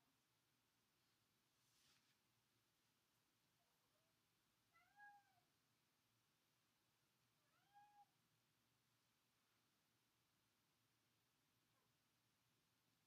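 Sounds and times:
faint cat meows: 4.7 - 5.6, 7.4 - 8.2.

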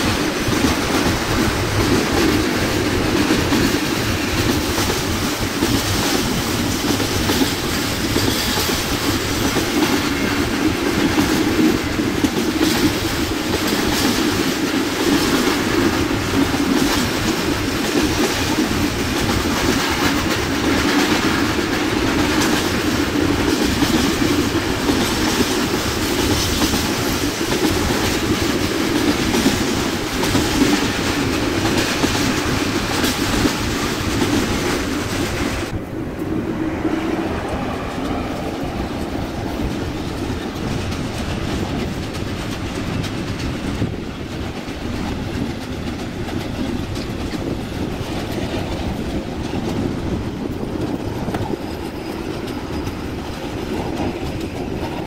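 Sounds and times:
freight train rumbling past: 0.0 - 55.0
wheels clicking over rail joints: 37.4 - 55.0.

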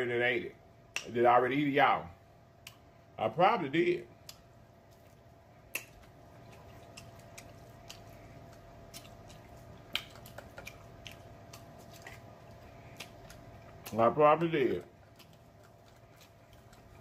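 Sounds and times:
faint steady hum: 0.0 - 17.0
chewing clicks and smacks: 0.9 - 1.2, 2.6 - 2.9, 4.2 - 17.0.

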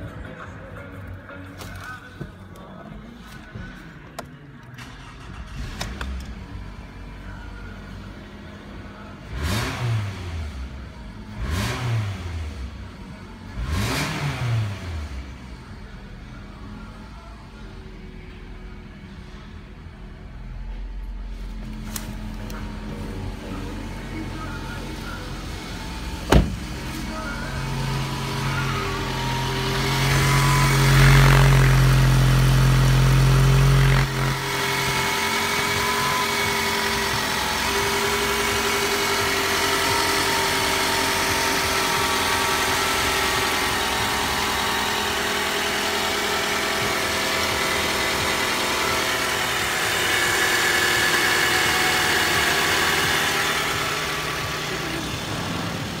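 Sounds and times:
car engine idling: 0.0 - 56.0
heavy low hum: 15.2 - 56.0.

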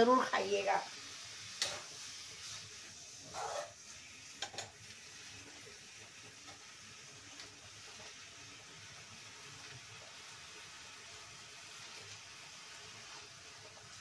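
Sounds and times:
greens sizzling in oil: 0.0 - 14.0.

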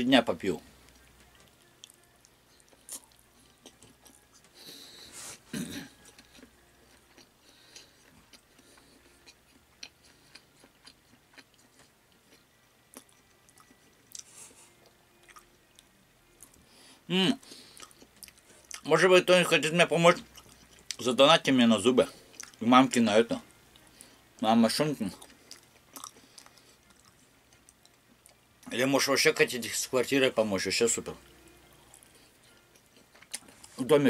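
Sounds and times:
person chewing salad: 0.9 - 4.8, 5.9 - 16.6, 17.4 - 18.9, 20.2 - 21.0, 22.2 - 22.6, 25.1 - 28.7, 31.8 - 33.8.

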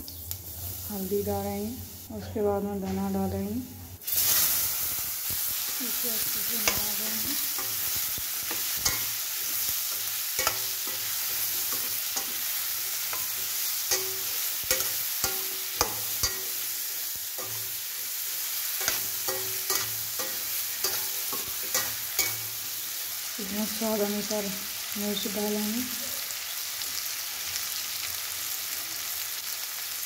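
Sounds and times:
pumpkin sizzling in hot oil: 4.0 - 30.0
metal spoon scraping a pan: 5.5 - 22.8.

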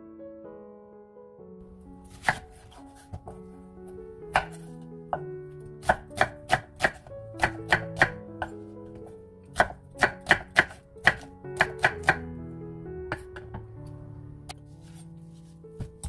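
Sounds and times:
soft background music: 0.0 - 16.0
knife chopping on cutting board: 2.1 - 3.4, 4.3 - 4.7, 5.8 - 8.2, 9.0 - 12.2.

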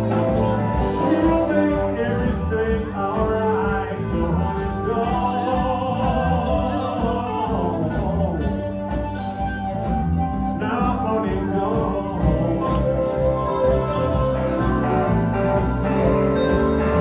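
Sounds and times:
steady low bass: 0.0 - 9.0, 9.6 - 17.0
electric guitar: 0.0 - 17.0
person singing: 0.7 - 9.0, 10.3 - 13.7.

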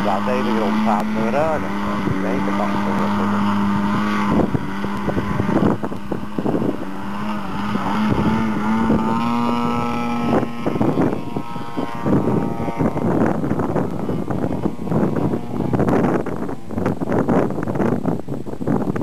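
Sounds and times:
model plane engine droning: 0.0 - 19.0
wind buffeting microphone: 0.0 - 19.0.

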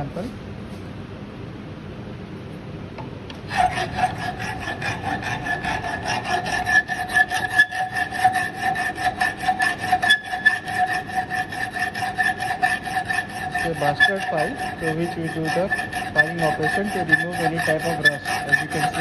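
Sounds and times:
file rasping on steel: 3.4 - 19.0.

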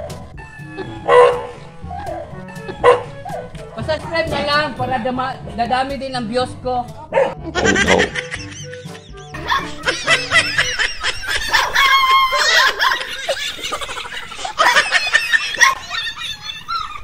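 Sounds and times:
background music: 0.0 - 16.6
people laughing: 7.4 - 17.0.

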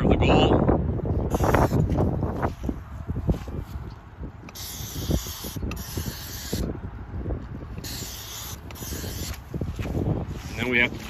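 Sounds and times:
wind rumbling on microphone: 0.0 - 11.0
spray paint hissing: 1.2 - 2.1, 4.4 - 6.7, 7.7 - 11.0.

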